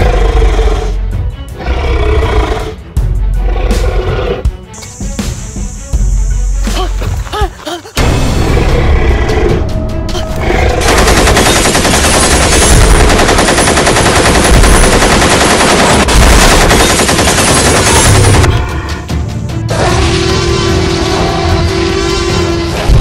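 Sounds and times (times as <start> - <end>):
rapid gunfire: 10.8 - 18.5.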